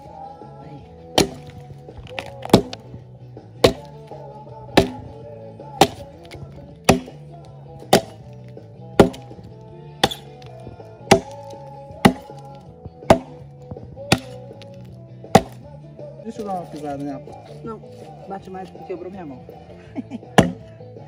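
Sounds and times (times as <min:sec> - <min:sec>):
background music: 0:00.0 - 0:21.0
axe chopping log: 0:01.0 - 0:03.0, 0:03.6 - 0:15.7, 0:20.3 - 0:20.7.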